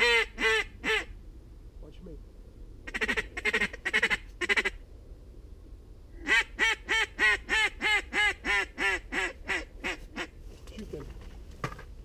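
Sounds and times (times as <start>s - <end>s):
goose call clucking notes: 0.0s - 1.1s, 2.9s - 4.8s, 6.2s - 10.4s
goose call honks: 0.0s - 1.1s, 2.9s - 4.8s.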